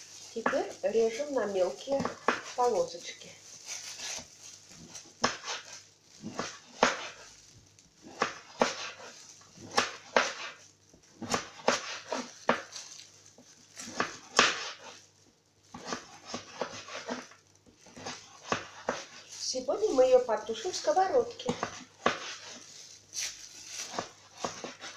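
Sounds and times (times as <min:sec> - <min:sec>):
knife scraping: 0:00.2 - 0:07.4, 0:08.0 - 0:15.0, 0:15.7 - 0:20.1, 0:21.4 - 0:24.9
knife cutting on cutting board: 0:04.9 - 0:07.3, 0:08.0 - 0:10.6, 0:11.2 - 0:12.7, 0:13.8 - 0:15.0, 0:15.7 - 0:19.3, 0:21.5 - 0:24.9.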